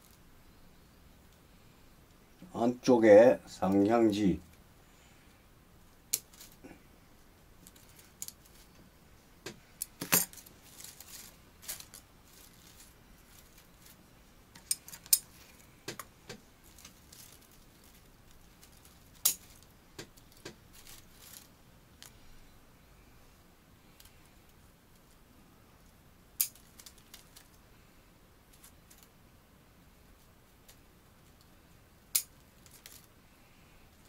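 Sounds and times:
scissors snipping twigs: 0:14.6 - 0:15.2, 0:19.2 - 0:20.6, 0:32.1 - 0:32.3.

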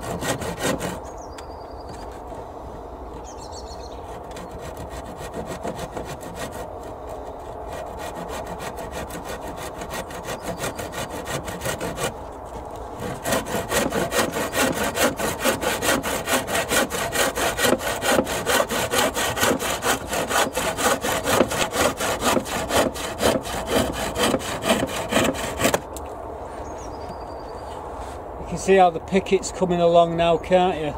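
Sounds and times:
handsaw cutting wood: 0:00.0 - 0:01.1, 0:04.0 - 0:25.9.

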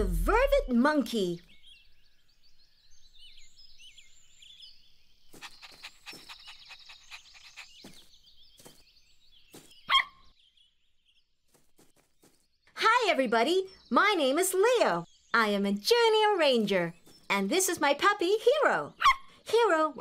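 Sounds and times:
faint chirping: 0:00.6 - 0:16.0
cartoon puppy yap: 0:09.9 - 0:10.2, 0:19.0 - 0:19.3.

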